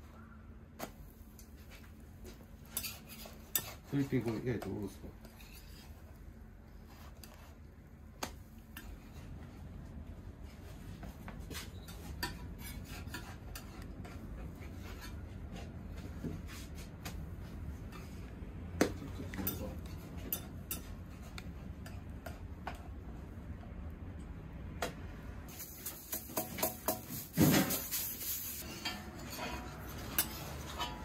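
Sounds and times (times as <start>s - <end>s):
metal spatula scraping griddle: 2.6s - 4.5s, 5.2s - 7.6s, 11.5s - 15.7s, 25.5s - 31.0s.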